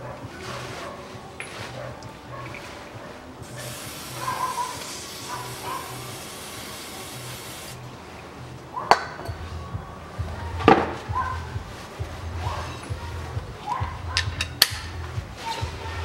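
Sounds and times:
steady hiss: 2.5 - 8.6
hand tools knocking on metal: 8.9 - 9.5, 13.7 - 15.3.

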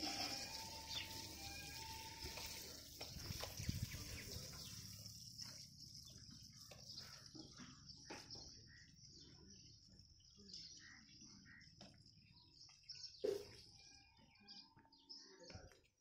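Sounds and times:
high-pitched insect drone: 0.0 - 3.0.

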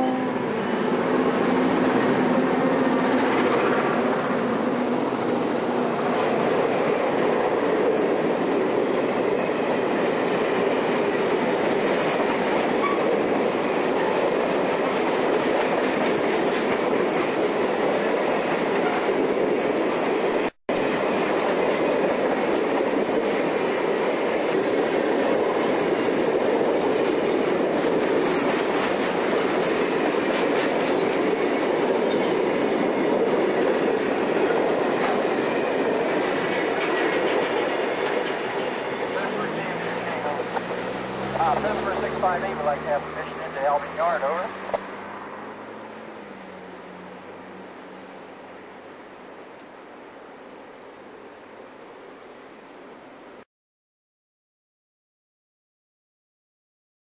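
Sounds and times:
freight train wheels rumbling: 0.0 - 48.9
wheels clickety-clack: 0.9 - 45.0.

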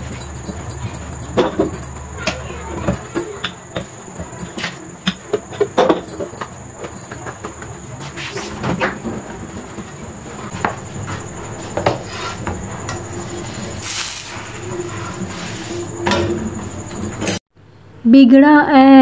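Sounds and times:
gas burner rushing: 7.9 - 17.4.

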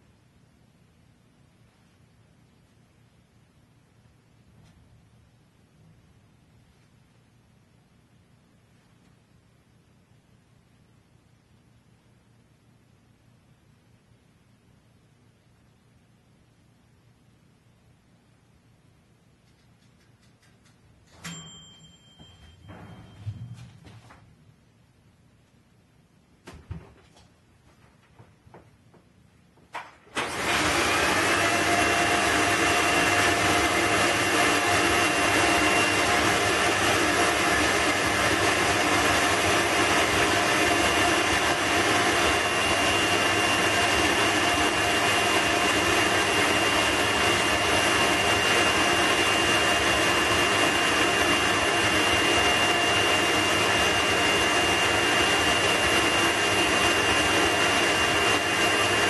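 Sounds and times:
vacuum motor whine: 30.1 - 59.0.

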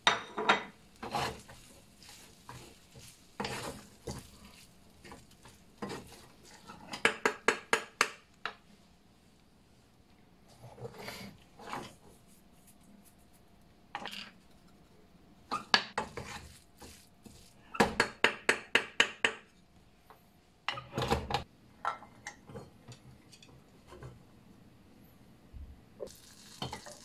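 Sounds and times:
spatula knocking on metal pan: 6.9 - 8.2.

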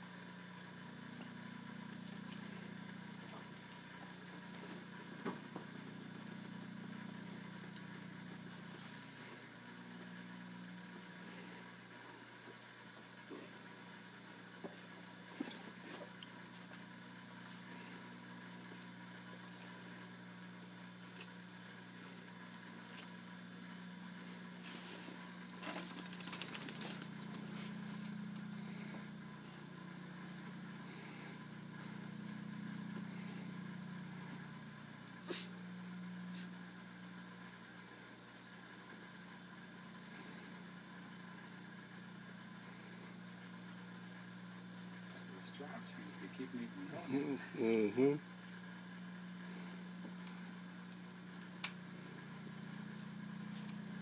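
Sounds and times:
low hum: 13.4 - 45.4
metallic jingling: 25.5 - 27.2.

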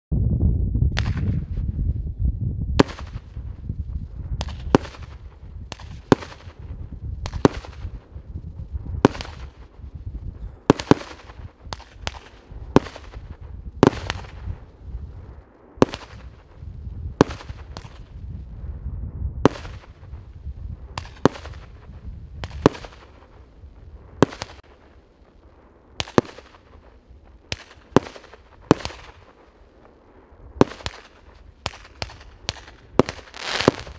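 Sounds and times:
low rumble: 0.1 - 10.7, 11.3 - 24.3
firework shells bursting: 4.4 - 8.1, 9.0 - 9.9, 10.6 - 14.6, 20.9 - 23.5, 24.2 - 24.9, 25.9 - 30.0, 30.6 - 33.9.

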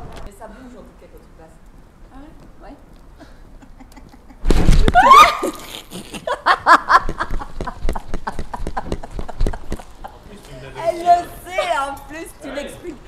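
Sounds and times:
women laughing: 3.2 - 10.5
women crying out startled: 4.8 - 5.8.

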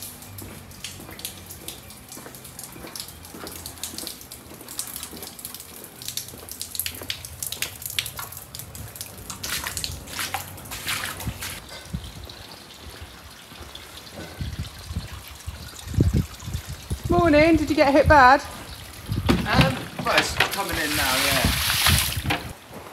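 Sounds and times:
boots splashing through water: 0.0 - 11.6, 19.3 - 22.5
rain dripping: 0.0 - 22.9.

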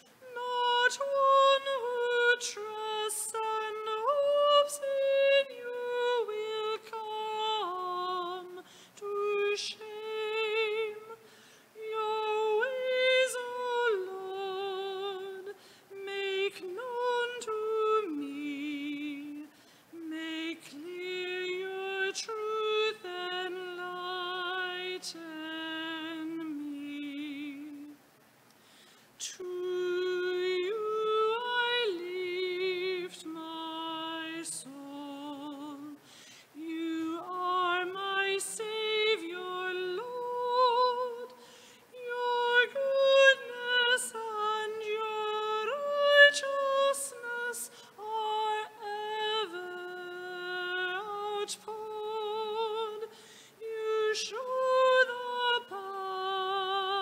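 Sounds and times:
woman singing a slow hymn: 0.0 - 57.0.

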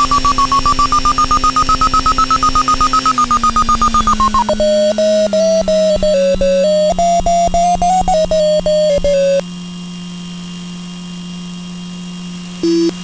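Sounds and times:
short electronic beeps: 0.0 - 9.4, 12.6 - 13.0.

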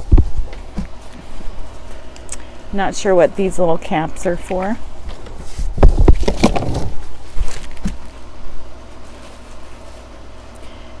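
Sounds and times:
plastic wrapping rustling: 5.1 - 10.5.

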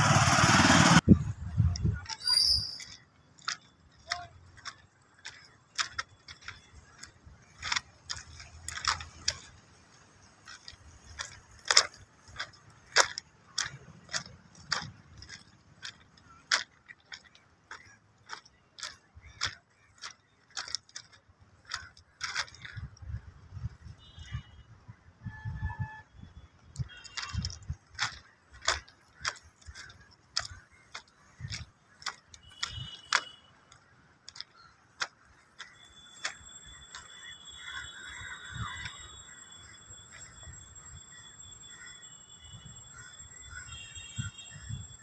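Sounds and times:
footsteps crunching on gravel: 2.9 - 23.0, 26.8 - 40.5.

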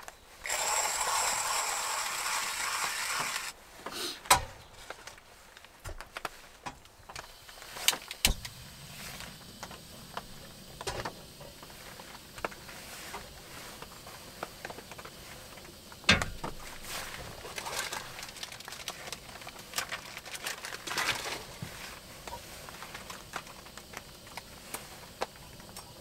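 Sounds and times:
hand coffee grinder cranking: 0.4 - 3.6, 17.4 - 21.5.

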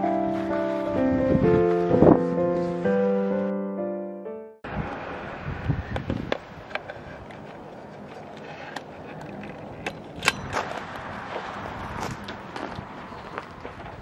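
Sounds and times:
gear clicks and knocks: 6.3 - 11.4.

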